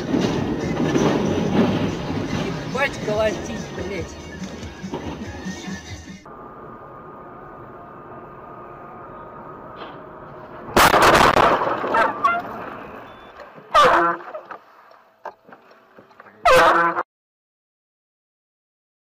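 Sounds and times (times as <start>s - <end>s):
loud crash of a collision: 0.0s - 2.8s, 10.7s - 12.9s
road noise inside a car: 0.0s - 11.3s, 12.0s - 16.8s
loud pitched horn blasts: 11.9s - 12.6s, 13.7s - 14.4s, 16.4s - 17.0s.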